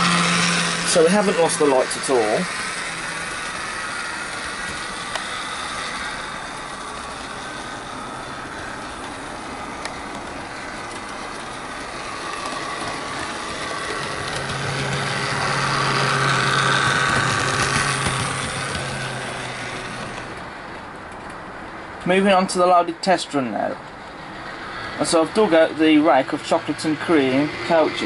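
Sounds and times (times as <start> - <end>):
model train motor whirring: 0.0 - 21.4
wheels rolling on rails: 0.0 - 28.0.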